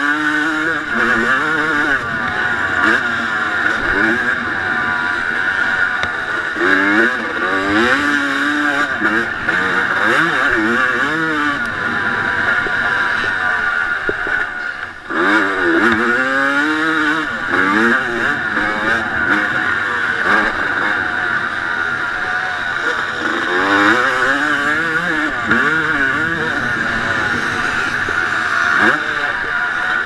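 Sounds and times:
motocross engine revving: 0:00.0 - 0:30.0.

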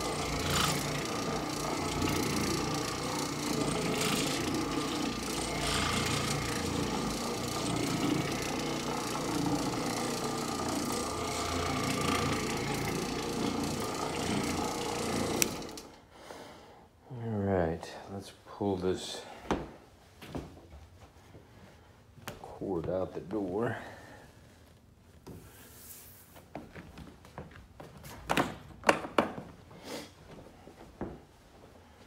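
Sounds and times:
floor machine motor hum: 0:00.0 - 0:16.0.

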